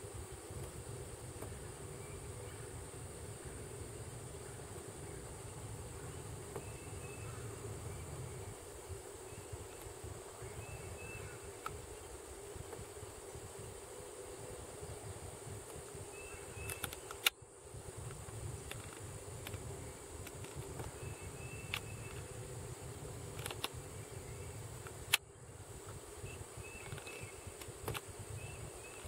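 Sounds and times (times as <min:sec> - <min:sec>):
steady hum and hiss: 0:00.0 - 0:29.0
sharp clicks: 0:16.6 - 0:17.4, 0:21.6 - 0:22.2, 0:23.3 - 0:23.8, 0:26.8 - 0:28.1.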